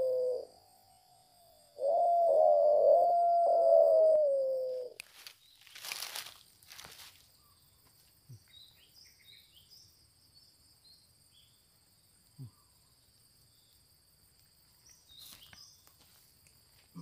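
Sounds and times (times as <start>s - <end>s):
high-pitched insect drone: 0.0s - 5.3s
small birds chirping: 4.9s - 17.0s.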